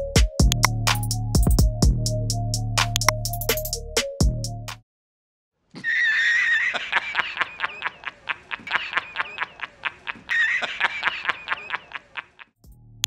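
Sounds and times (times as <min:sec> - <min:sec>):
man laughing in squealing bursts: 0:05.8 - 0:12.6.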